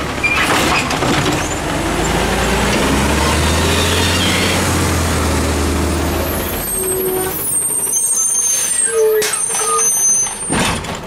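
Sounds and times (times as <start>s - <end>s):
garbage truck rolling: 0.0s - 7.8s, 9.2s - 11.0s
truck brakes squealing: 3.4s - 4.8s, 6.0s - 10.6s.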